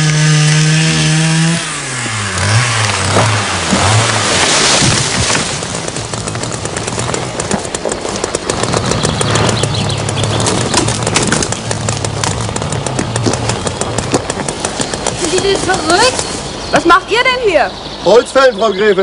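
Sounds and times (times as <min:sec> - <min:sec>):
forestry machine engine hum: 0:00.0 - 0:19.0
dense crackle of clicks: 0:04.8 - 0:16.1.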